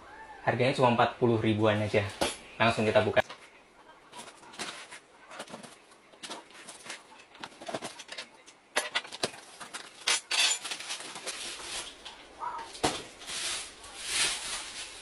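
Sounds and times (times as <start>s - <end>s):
hand rummaging in box: 4.1s - 12.1s.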